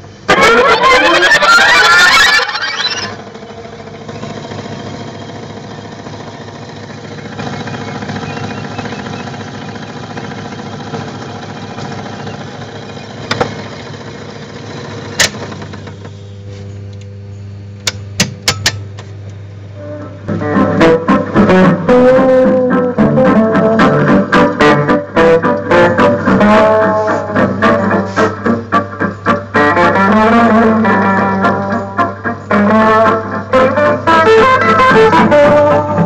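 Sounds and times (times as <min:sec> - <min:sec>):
loud music: 0:00.3 - 0:03.2, 0:19.9 - 0:36.0.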